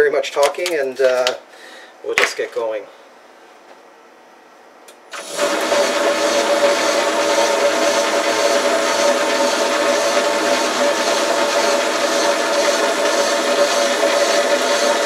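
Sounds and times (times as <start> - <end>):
metal lathe running: 5.2 - 15.0.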